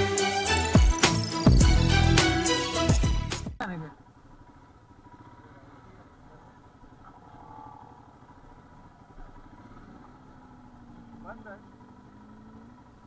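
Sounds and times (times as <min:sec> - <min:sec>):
motorcycle engine idling: 0:00.6 - 0:13.0.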